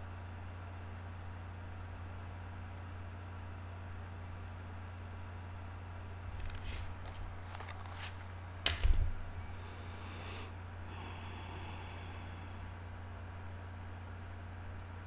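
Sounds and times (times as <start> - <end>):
steady low hum: 0.0 - 15.0
cards rustling: 6.3 - 9.2
sharp card click: 6.4 - 9.0.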